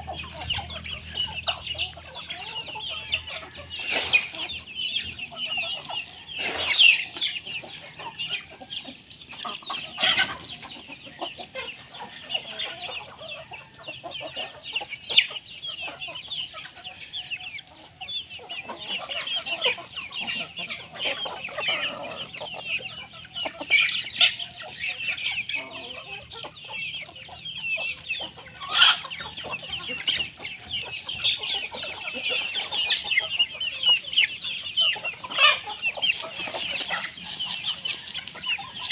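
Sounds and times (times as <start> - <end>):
chickens clucking: 0.0 - 38.9
chicks chirping: 0.0 - 38.9.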